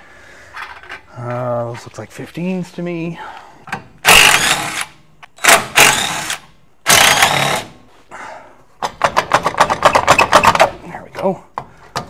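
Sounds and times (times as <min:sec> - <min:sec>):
electric ratchet running: 0:04.1 - 0:07.7.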